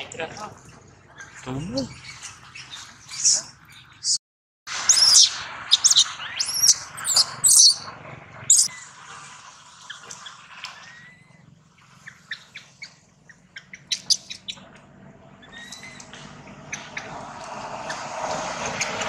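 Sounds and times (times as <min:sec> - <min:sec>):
baby monkey screaming: 0:04.9 - 0:07.9, 0:08.5 - 0:08.7, 0:10.8 - 0:11.4, 0:13.8 - 0:14.6, 0:15.4 - 0:16.1.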